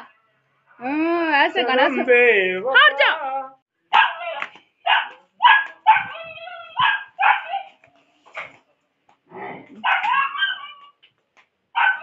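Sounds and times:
dog barking and yipping: 3.9s - 7.8s, 9.8s - 11.0s, 11.7s - 12.0s.

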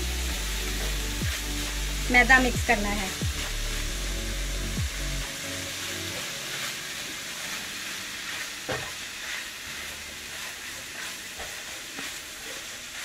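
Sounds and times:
food sizzling in a pan: 0.0s - 13.0s
spatula scraping a pan: 5.8s - 13.0s.

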